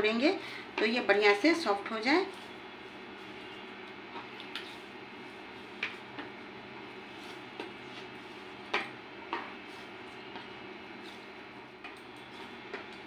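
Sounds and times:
dough knocking against bowl: 0:08.6 - 0:09.5.

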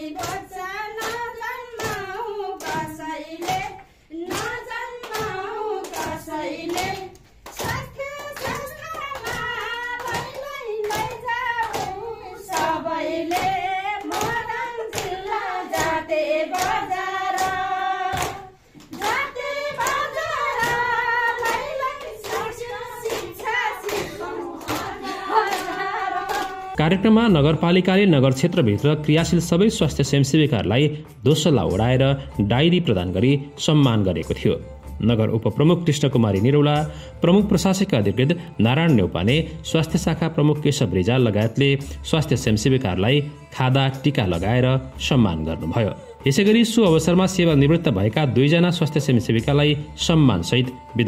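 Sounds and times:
women singing in unison: 0:00.0 - 0:26.8
rhythmic hand clapping: 0:00.0 - 0:35.0, 0:36.1 - 0:51.0.

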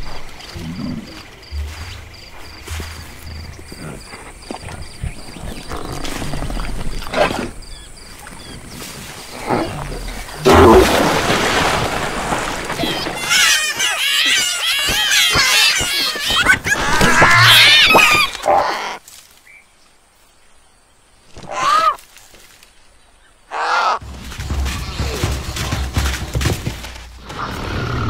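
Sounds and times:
high wavering cartoon squeals: 0:12.8 - 0:18.4.

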